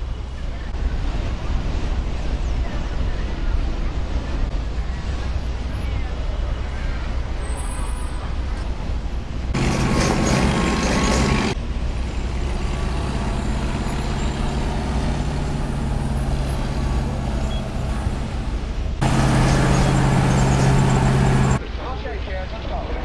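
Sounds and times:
truck engine running: 0:09.4 - 0:21.6.

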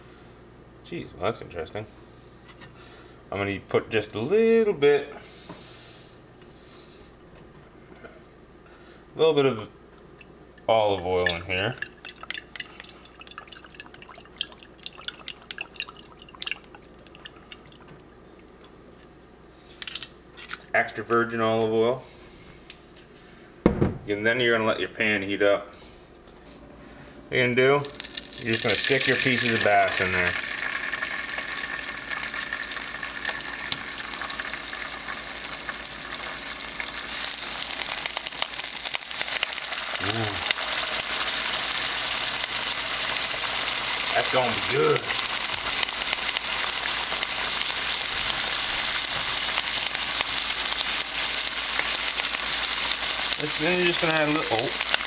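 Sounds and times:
oil dripping into frying pan: 0:11.2 - 0:18.1
fish sizzling in oil: 0:27.9 - 0:55.0.

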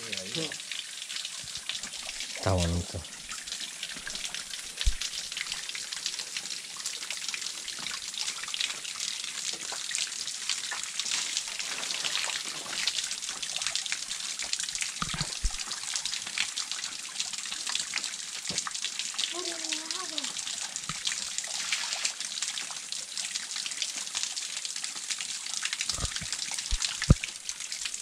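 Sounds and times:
water trickling and splashing: 0:00.0 - 0:28.0
dull low thump: 0:04.8 - 0:05.0.

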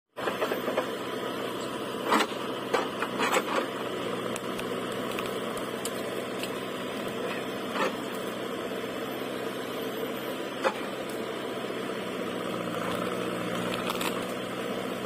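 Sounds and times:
diesel engine running: 0:00.1 - 0:15.0.

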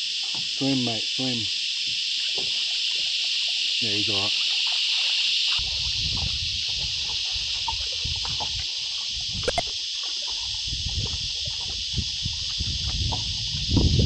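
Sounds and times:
insects droning: 0:00.0 - 0:14.0.

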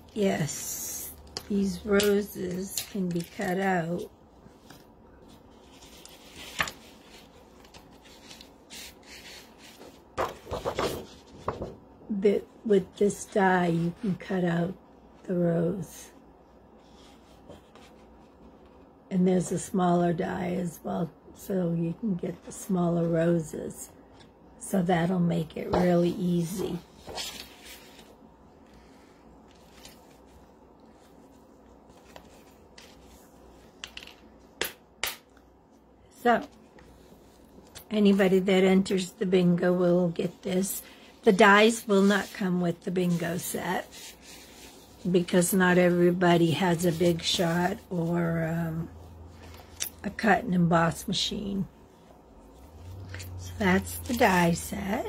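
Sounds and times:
soft rubbing and rustling: 0:00.0 - 0:14.4, 0:15.1 - 0:19.0, 0:24.9 - 0:34.5, 0:35.6 - 0:55.0
low room background: 0:00.0 - 0:55.0
paper and plastic rustling: 0:01.3 - 0:03.8, 0:04.5 - 0:11.8, 0:26.4 - 0:28.2, 0:29.4 - 0:34.3.

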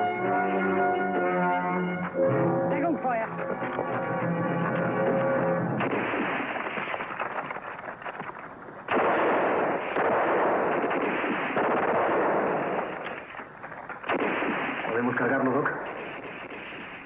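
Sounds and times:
rapid gunfire: 0:03.4 - 0:17.0.

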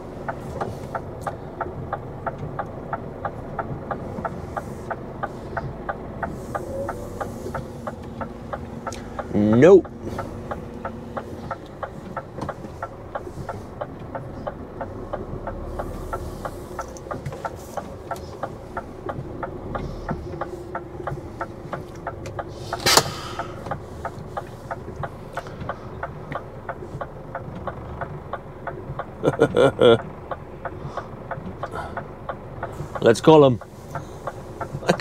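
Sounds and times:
diesel engine idling: 0:00.0 - 0:35.0
steady ticking: 0:00.0 - 0:35.0
sharp knock: 0:22.8 - 0:23.7.

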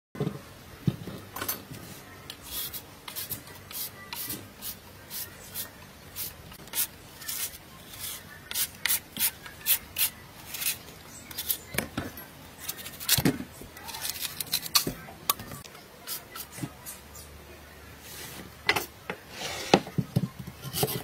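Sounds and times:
peeler scraping root skin: 0:06.2 - 0:11.7.

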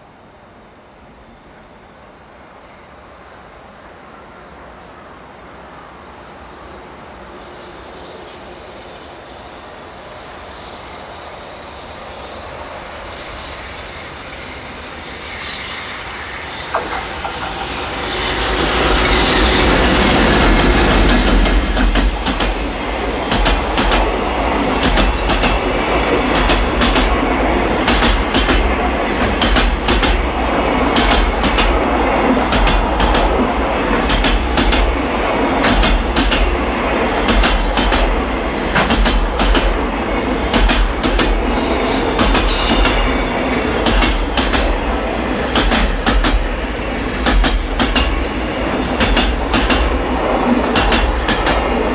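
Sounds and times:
electric locomotive passing: 0:00.0 - 0:51.9
train wheels clickety-clack: 0:16.5 - 0:51.9.

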